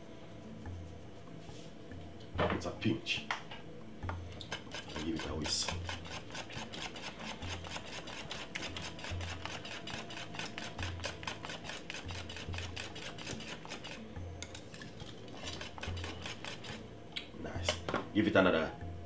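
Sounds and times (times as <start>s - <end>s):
whisk scraping a metal pot: 4.4s - 16.8s.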